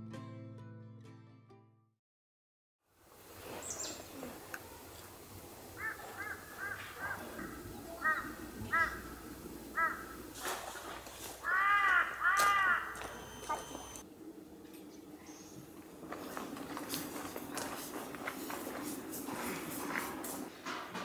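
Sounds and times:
crows cawing: 5.8 - 10.4, 11.4 - 14.0.

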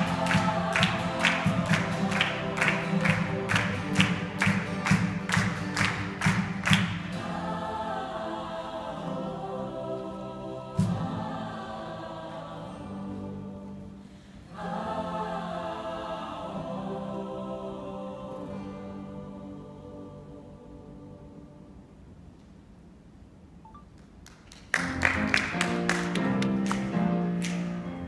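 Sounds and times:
hand claps: 0.0 - 7.2, 24.0 - 27.8
choir singing in harmony: 0.0 - 22.3.

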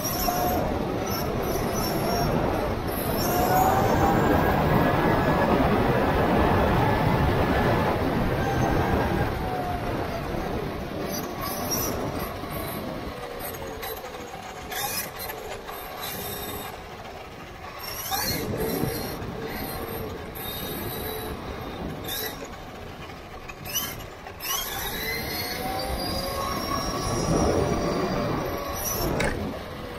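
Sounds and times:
tyre and road rumble: 0.0 - 29.9
electric motor whining: 23.5 - 29.9.

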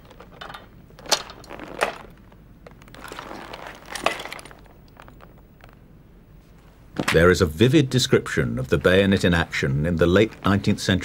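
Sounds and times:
equipment rustling: 0.0 - 5.8.

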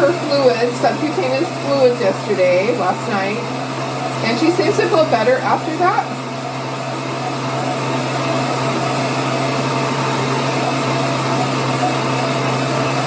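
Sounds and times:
heat tool fan humming: 0.0 - 13.0.

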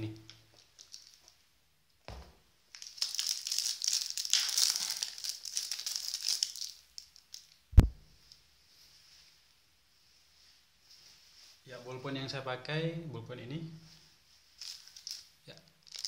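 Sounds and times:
plastic packaging crinkling: 0.4 - 1.4, 2.7 - 7.6, 14.6 - 16.0
sharp thump: 2.1 - 2.4, 7.8 - 8.0.

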